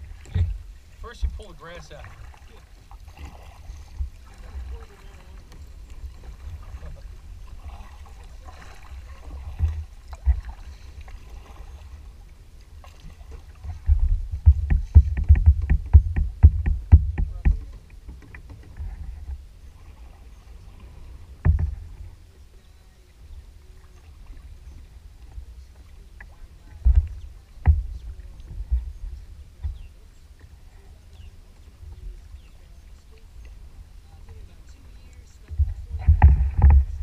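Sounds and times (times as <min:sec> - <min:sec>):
low rumble of paddling: 0:00.0 - 0:37.0
knocks on plastic kayak hull: 0:14.4 - 0:18.6.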